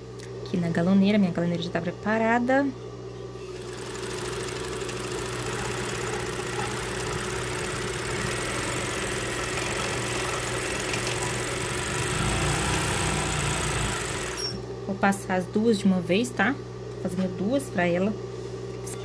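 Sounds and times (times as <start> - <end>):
industrial sewing machine running: 3.6 - 14.6.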